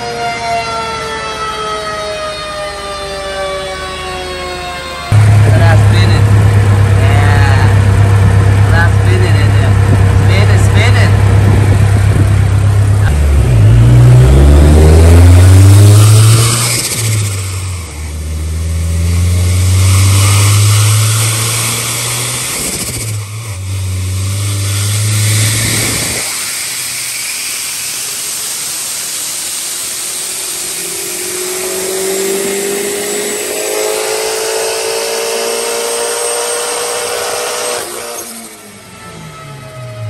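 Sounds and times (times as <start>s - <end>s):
car engine running with turbo rush: 5.1s - 40.0s
rushing hiss: 23.8s - 31.6s.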